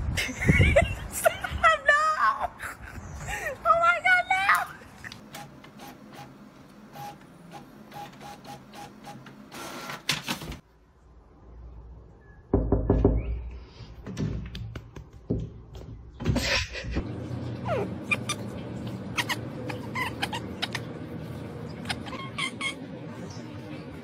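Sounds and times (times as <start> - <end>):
inkjet printer running: 5.3 - 10.0
thuds and knocks: 14.0 - 16.6.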